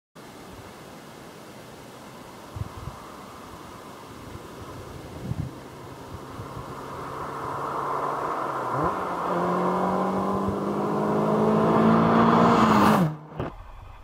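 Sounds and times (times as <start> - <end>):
sports car accelerating: 5.5 - 13.5.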